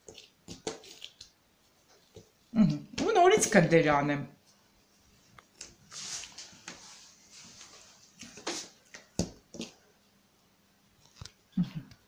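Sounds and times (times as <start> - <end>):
hands handling dough: 0.0 - 3.2, 4.9 - 10.1.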